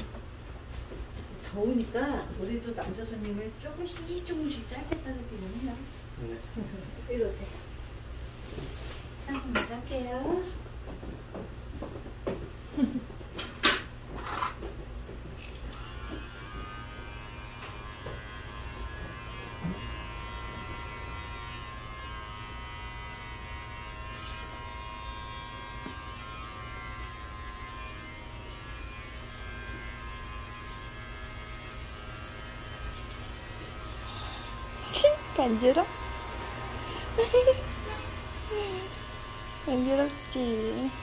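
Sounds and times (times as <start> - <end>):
electric hair clipper buzzing: 15.4 - 41.0.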